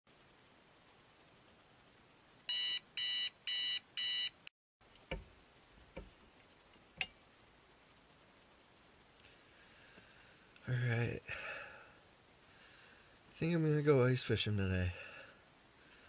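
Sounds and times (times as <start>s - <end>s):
alarm clock beeping: 2.5s - 4.4s.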